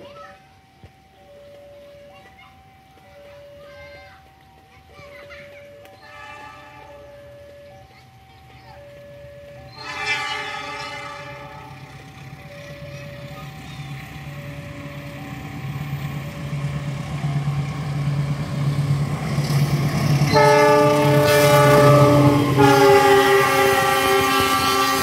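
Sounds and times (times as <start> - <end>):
diesel locomotive engine rumble: 0.1 - 25.0
train horn: 6.0 - 7.2, 9.7 - 12.0, 20.3 - 25.0.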